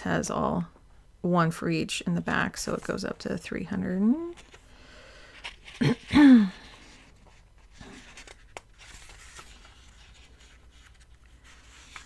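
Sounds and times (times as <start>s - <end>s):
paper pages rustling: 4.2s - 12.0s.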